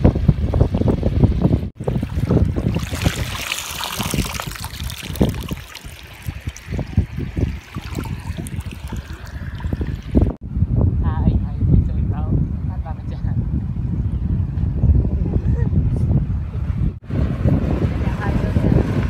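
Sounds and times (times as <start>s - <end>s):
wind buffeting microphone: 0.0s - 19.0s
river water splashing: 1.8s - 10.4s.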